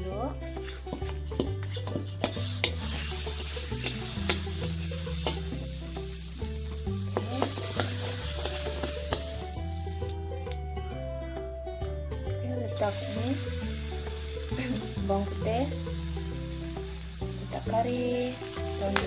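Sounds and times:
wooden spatula scraping a pan: 0.5 - 5.5
butter sizzling in a pan: 0.6 - 10.2, 12.7 - 19.0.

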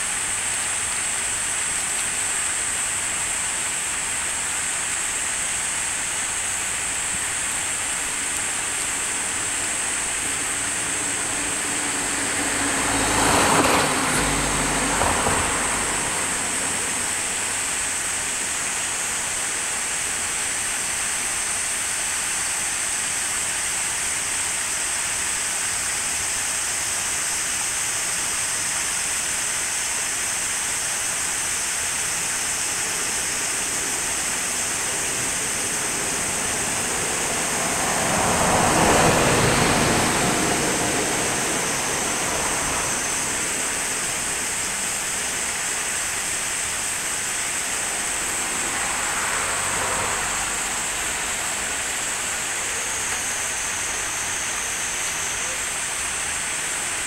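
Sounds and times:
water rushing over weirs: 0.0 - 57.0
loud whoosh of water: 27.7 - 52.6.

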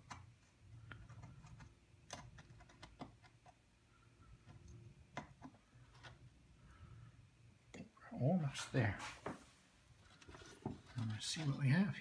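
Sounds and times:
faint clicks and taps: 0.0 - 3.6, 4.3 - 6.3
faint low hum: 0.0 - 12.0.

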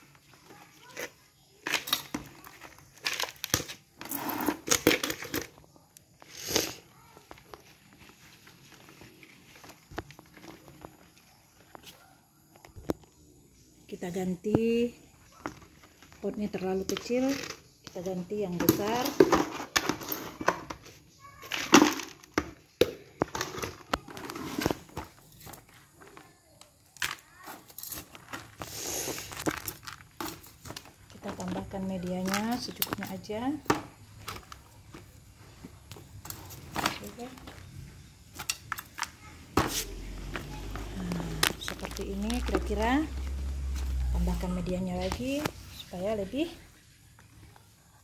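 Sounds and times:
potting mix rustling and crunching: 0.0 - 48.0
plastic flower pots knocking: 28.2 - 46.0.

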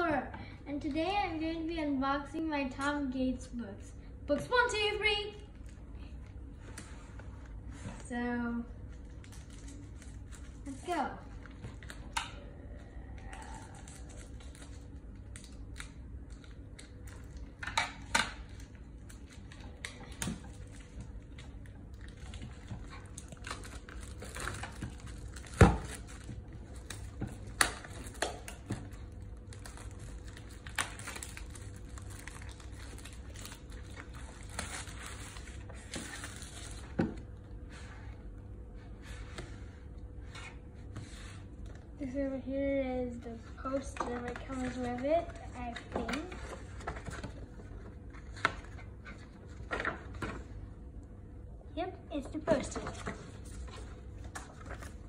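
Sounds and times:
packaging crinkling and tearing: 8.8 - 12.2, 13.2 - 37.3.

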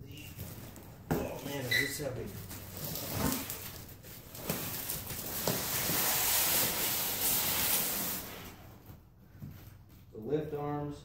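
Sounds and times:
cardboard carton scraping on concrete: 0.4 - 9.0.

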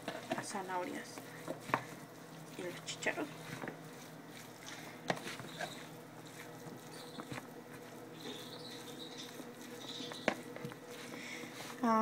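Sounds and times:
spoon scraping and squishing food: 0.0 - 11.8.

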